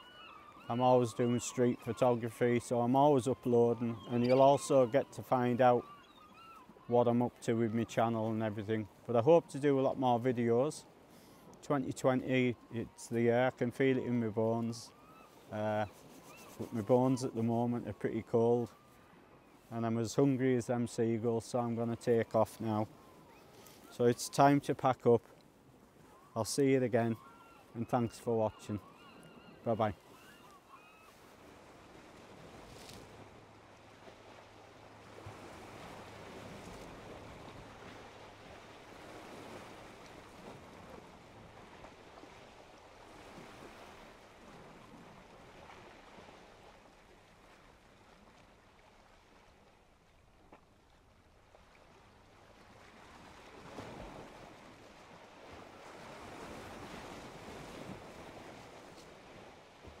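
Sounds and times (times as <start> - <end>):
waves washing on shore: 31.1 - 60.0.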